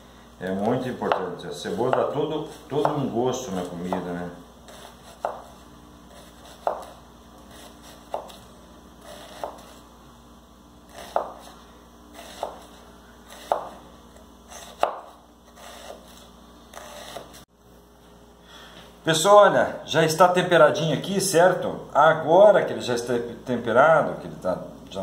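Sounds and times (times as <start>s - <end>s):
knife chopping onion on wooden board: 1.0s - 8.4s, 9.0s - 9.8s, 10.9s - 13.8s, 14.5s - 17.4s.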